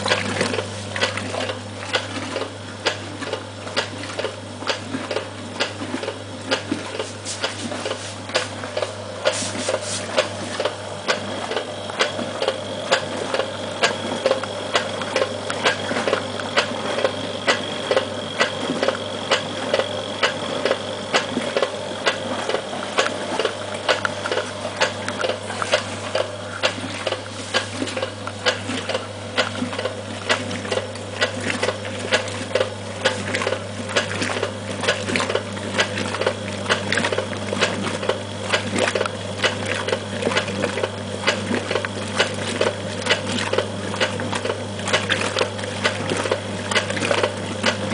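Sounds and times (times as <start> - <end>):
agitator churning water: 0.0 - 47.9
washing machine motor humming: 0.0 - 47.9.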